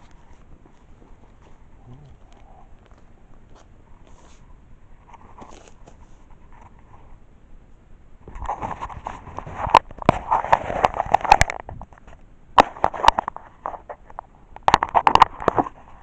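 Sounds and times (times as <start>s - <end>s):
microphone handling rustling and knocks: 8.2s - 16.0s.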